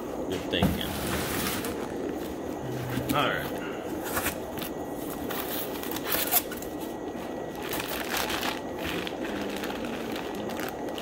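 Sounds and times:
plastic bag crinkling: 7.5 - 11.0.

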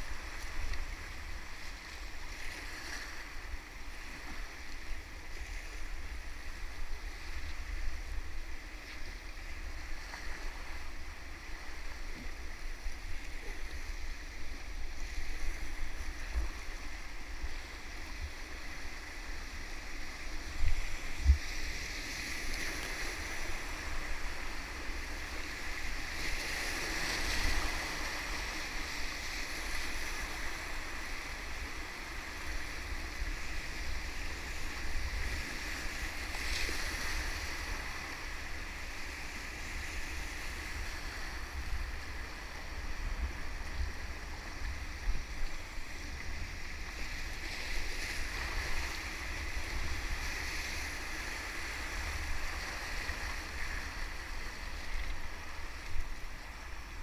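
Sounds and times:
low river rumble: 0.0 - 57.0.

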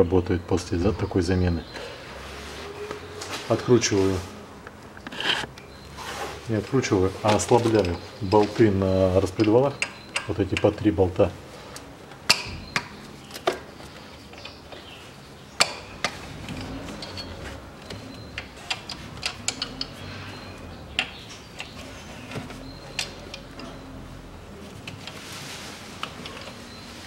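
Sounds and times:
wrench clicking on metal bolts: 9.3 - 10.8, 15.6 - 21.8.

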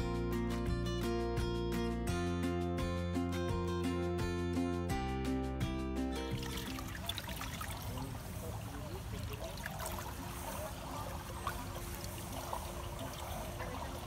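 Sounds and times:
pool water lapping: 6.2 - 14.0.

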